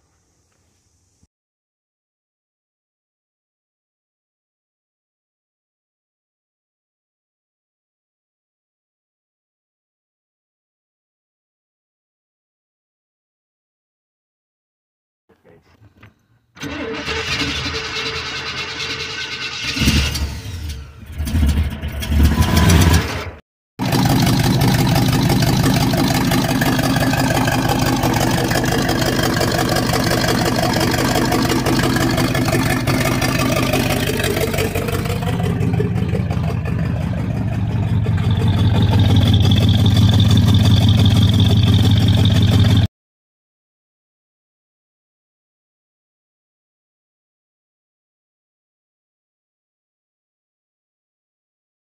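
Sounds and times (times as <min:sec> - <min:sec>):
car engine starting and revving: 0:16.6 - 0:42.9.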